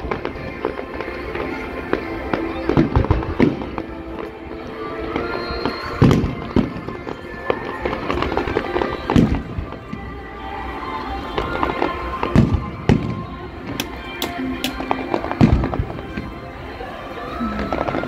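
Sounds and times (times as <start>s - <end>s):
fireworks bangs: 0.0s - 16.8s
fireworks crackling: 0.0s - 18.0s
music playing: 0.0s - 18.0s.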